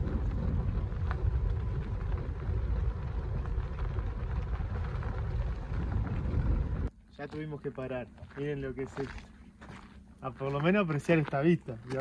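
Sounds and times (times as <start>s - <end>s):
vehicle driving on gravel: 0.0s - 12.0s.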